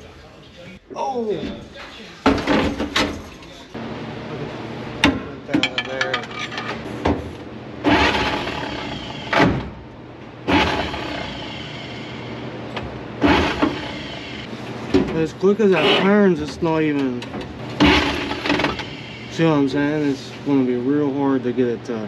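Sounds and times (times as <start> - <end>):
starter cranking engine: 7.8 - 9.5, 10.5 - 11.6, 13.2 - 14.3, 17.8 - 18.9.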